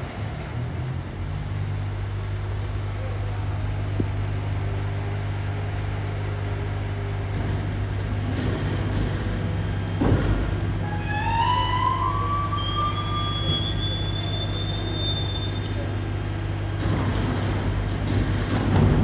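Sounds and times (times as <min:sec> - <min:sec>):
electric truck humming: 0:09.4 - 0:15.8.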